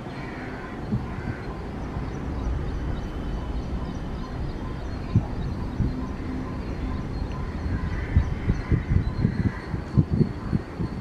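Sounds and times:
diesel locomotive rumble: 0.0s - 11.0s.

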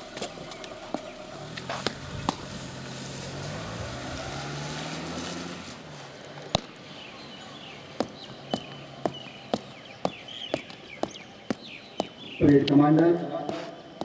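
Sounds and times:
boots stamping on wet ground: 8.0s - 14.0s.

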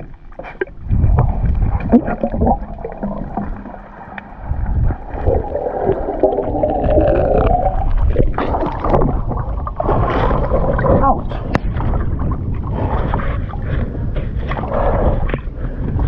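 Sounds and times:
water splashes and drips: 0.0s - 12.6s
underwater rumble and gurgling: 0.0s - 16.0s.

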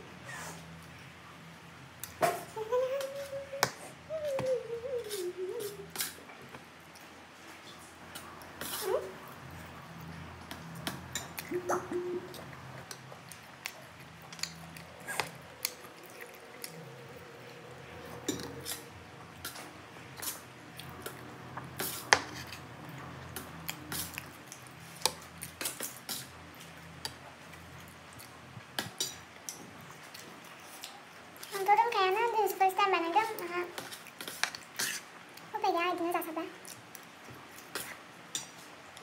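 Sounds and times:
low hum: 7.8s - 25.0s.

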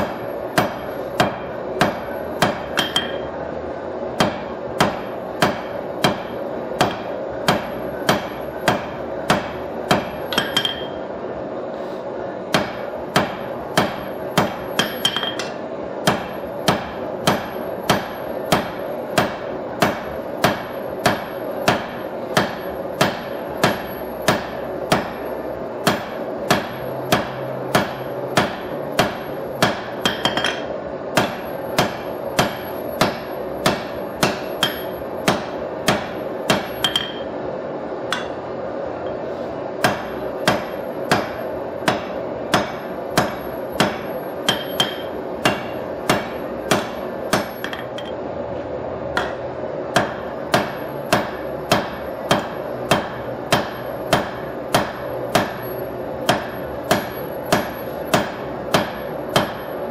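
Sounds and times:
hammer ringing on anvil: 0.6s - 3.3s, 6.8s - 11.0s, 12.5s - 15.6s, 25.9s - 37.3s, 38.1s - 38.4s, 41.9s - 48.2s.

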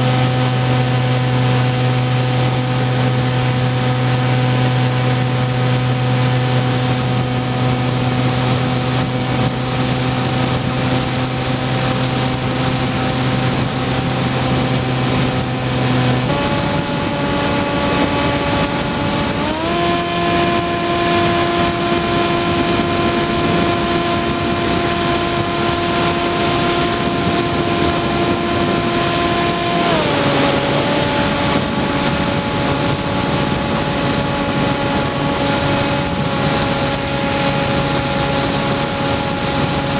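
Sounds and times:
electric motor and propeller whining: 0.0s - 39.9s
rushing air: 6.8s - 39.9s.

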